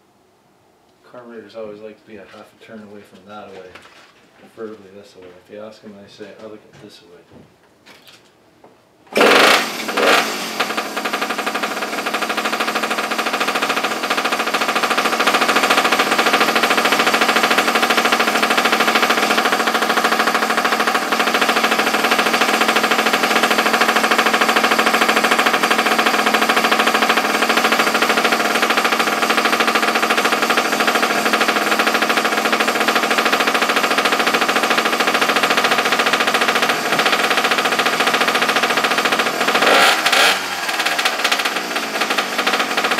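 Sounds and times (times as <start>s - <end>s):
minibike engine running: 9.2s - 42.9s.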